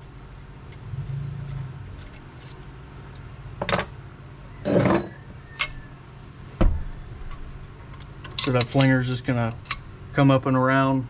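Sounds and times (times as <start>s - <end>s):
low steady hum: 0.0s - 11.0s
parts clattering: 4.6s - 5.8s, 6.7s - 9.9s
steel bolts clinking: 7.9s - 9.9s.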